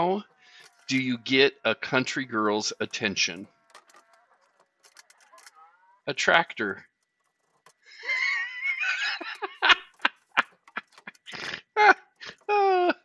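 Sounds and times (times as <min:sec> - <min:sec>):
man laughing: 0:07.9 - 0:13.0.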